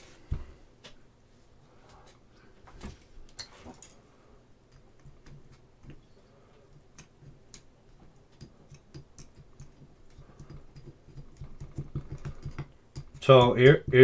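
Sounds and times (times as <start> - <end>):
low background hum: 0.0 - 14.0
small clicks and taps of tool: 6.6 - 13.2.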